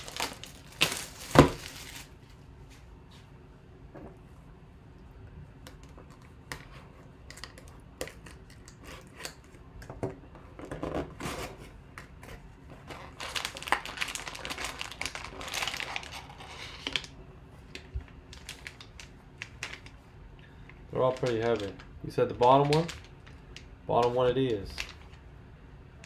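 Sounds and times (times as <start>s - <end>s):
crinkling and rustling packs: 0.0s - 2.4s, 12.8s - 25.2s.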